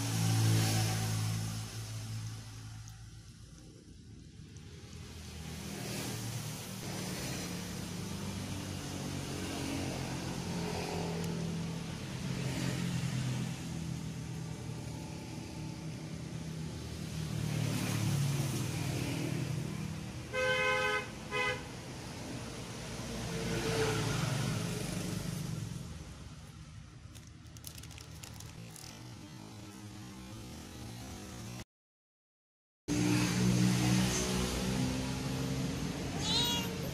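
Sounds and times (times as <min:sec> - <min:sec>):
passing road traffic: 0:00.0 - 0:31.6, 0:32.9 - 0:36.9
vehicle horn honking: 0:20.3 - 0:21.6.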